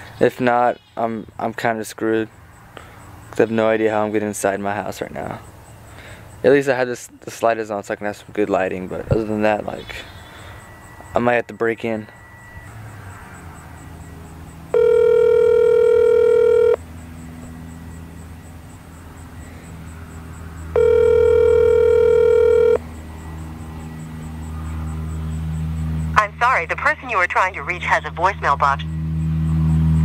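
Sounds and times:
phone ringback tone: 14.7 - 16.8, 20.7 - 22.8.

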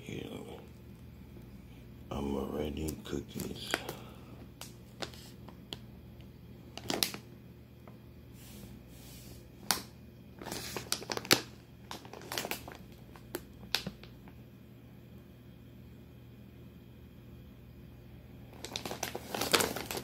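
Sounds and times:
plastic bag crinkling: 2.8 - 5.4, 6.7 - 7.3, 9.6 - 14.4, 18.5 - 20.0.

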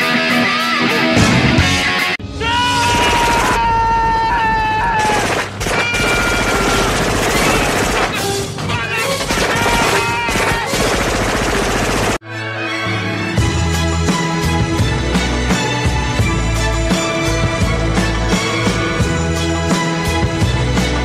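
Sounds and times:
automatic gunfire: 5.0 - 8.4, 9.1 - 12.2.

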